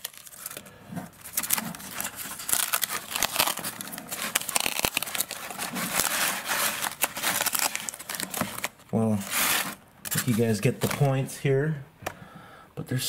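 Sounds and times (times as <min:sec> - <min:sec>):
packing material crinkling: 0:00.0 - 0:11.2.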